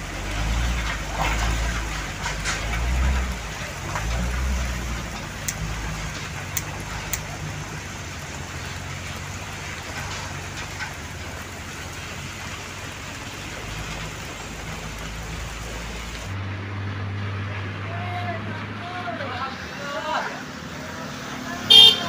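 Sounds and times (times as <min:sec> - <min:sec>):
rain hissing on a wet road: 0:00.0 - 0:16.4, 0:19.5 - 0:22.0
truck engine running low: 0:00.0 - 0:19.2.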